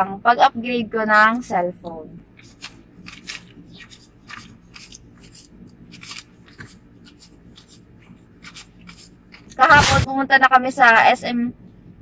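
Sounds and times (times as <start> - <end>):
banknotes being counted: 2.3 - 10.0.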